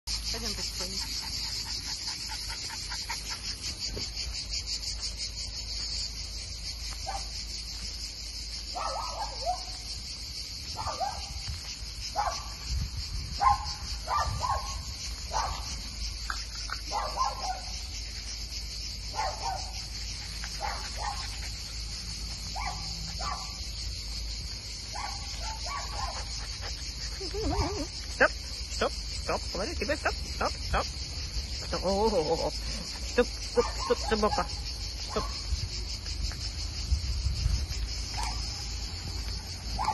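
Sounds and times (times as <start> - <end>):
insects chirring: 0.0 - 39.9
dog barking in the distance: 7.0 - 7.4, 8.7 - 9.8, 10.8 - 11.5, 12.1 - 12.6, 13.4 - 15.8, 16.9 - 17.8, 19.1 - 21.7, 22.5 - 23.6, 24.9 - 26.7, 35.1 - 35.5, 38.1 - 38.5.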